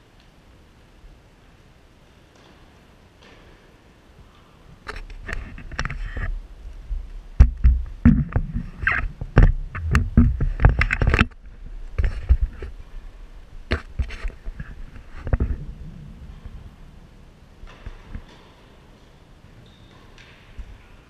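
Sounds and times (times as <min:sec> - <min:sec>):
camera handling knocks and thumps: 0:07.4 - 0:11.4.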